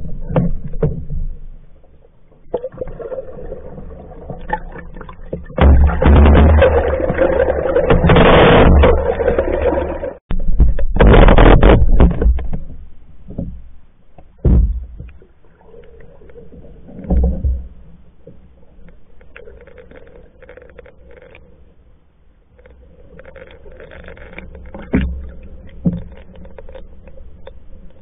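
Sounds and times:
water swishes: 0:00.0 - 0:10.2, 0:12.6 - 0:28.0
muffled underwater rushing: 0:00.0 - 0:12.4.

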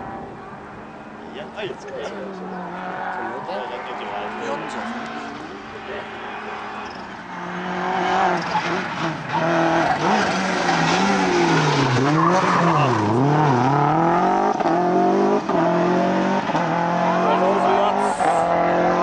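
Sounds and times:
rally car engine revving: 0:00.0 - 0:19.0.

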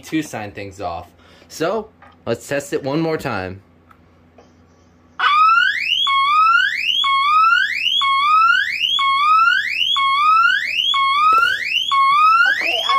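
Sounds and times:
smoke alarm electronic siren: 0:05.2 - 0:12.9.

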